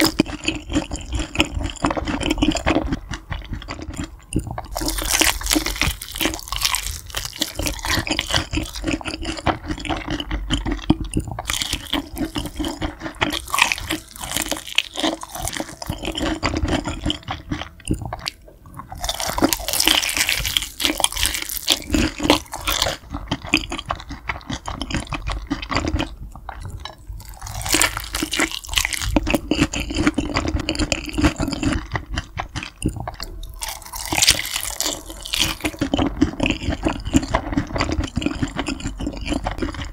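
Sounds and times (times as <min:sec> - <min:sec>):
chewing crunchy fried chicken: 0:00.0 - 0:39.9.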